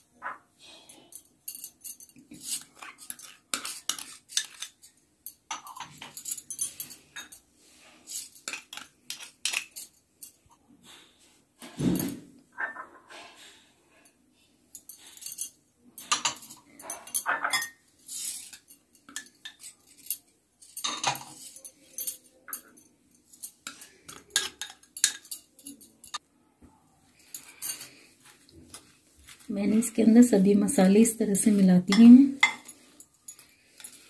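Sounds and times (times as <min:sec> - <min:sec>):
plastic spoon clinking glass bowls: 0:01.1 - 0:07.4, 0:18.4 - 0:26.2, 0:31.5 - 0:34.0.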